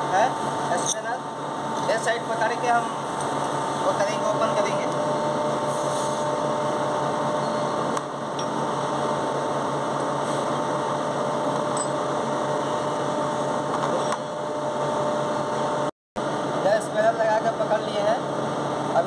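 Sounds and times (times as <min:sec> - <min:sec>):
steady machine hum: 0:00.0 - 0:19.0.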